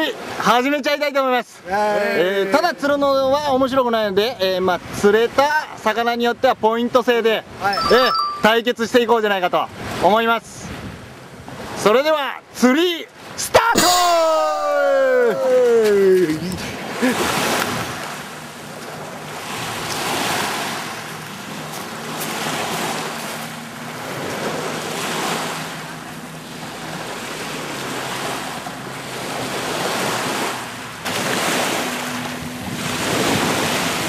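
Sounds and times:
wind buffeting microphone: 32.2s - 34.0s.

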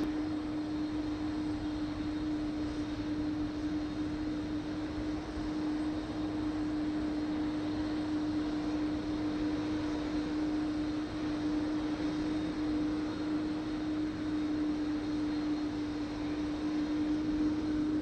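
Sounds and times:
jet engines running: 0.0s - 18.0s.

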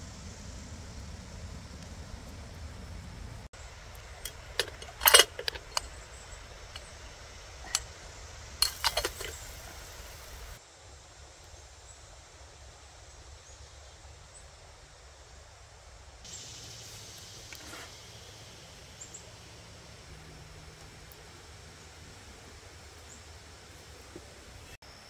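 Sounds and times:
faint steady background noise: 0.0s - 25.0s
small hard objects clinking: 4.2s - 5.9s, 8.6s - 10.6s.

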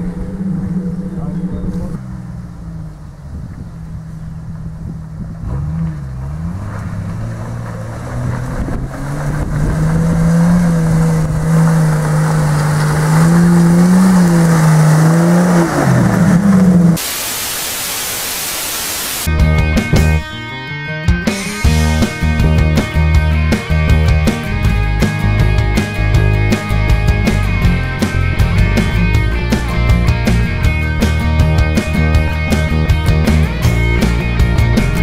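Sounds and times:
loud steady static hiss: 17.0s - 19.3s
music: 19.3s - 35.0s.

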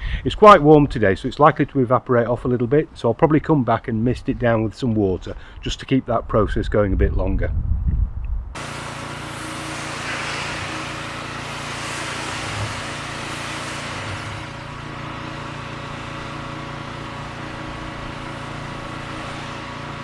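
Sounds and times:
pressure washer motor humming: 8.6s - 20.0s
water spray hissing: 8.6s - 20.0s.

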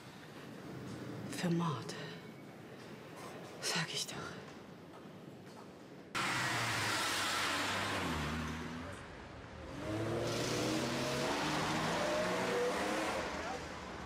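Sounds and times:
car engine accelerating: 6.2s - 14.0s.

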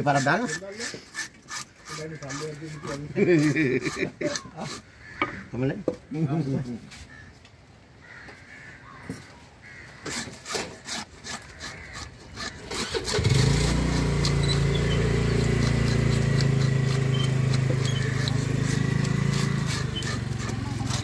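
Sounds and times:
knife scraping fish scales: 0.0s - 4.9s, 13.6s - 21.0s
engine running nearby: 12.8s - 21.0s.

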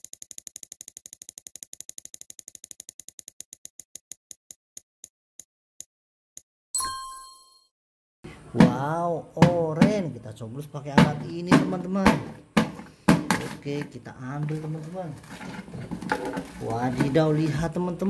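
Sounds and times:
prize wheel ticking: 0.0s - 4.1s
bright chime: 6.8s - 7.7s.

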